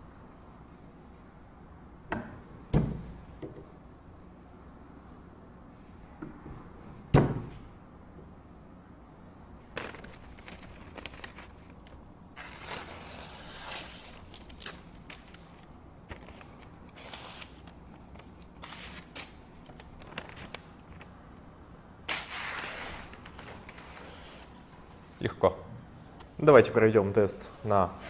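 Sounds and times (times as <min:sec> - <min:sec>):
knife slicing paper: 0:12.4 - 0:15.3, 0:22.1 - 0:24.5.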